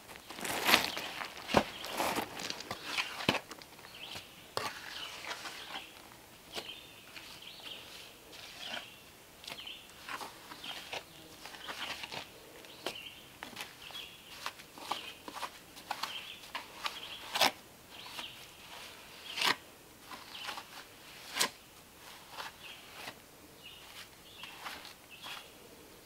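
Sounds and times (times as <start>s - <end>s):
tool scraping mortar: 7.3s - 8.9s
small bird chirping: 23.6s - 25.6s.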